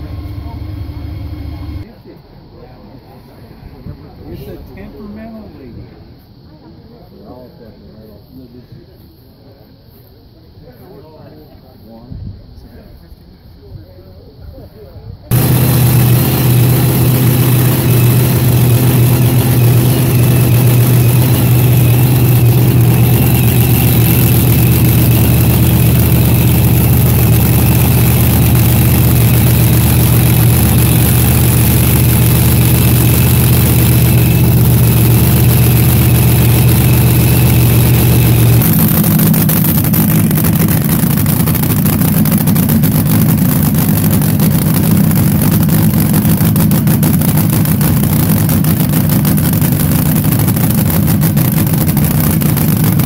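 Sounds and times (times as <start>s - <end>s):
drag racing engine idling: 0.0s - 1.9s, 15.3s - 53.0s.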